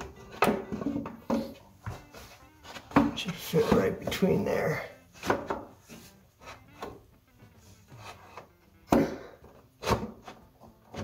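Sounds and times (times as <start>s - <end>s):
wood rubbing and scraping: 0.0s - 8.6s.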